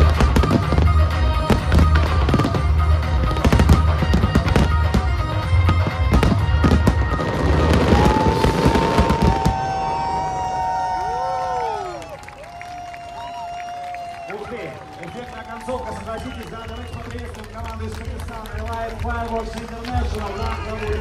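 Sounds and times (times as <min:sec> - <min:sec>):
loud music with pulsing bass: 0:00.0 - 0:09.3
fireworks bursting and crackling: 0:00.0 - 0:12.2, 0:15.8 - 0:21.0.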